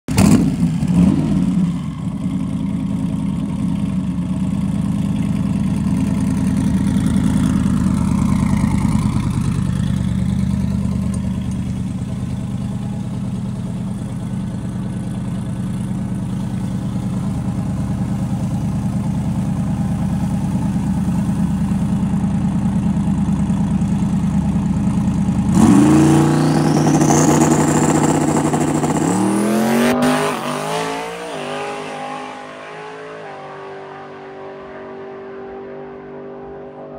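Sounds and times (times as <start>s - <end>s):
car engine revving: 25.4s - 36.9s.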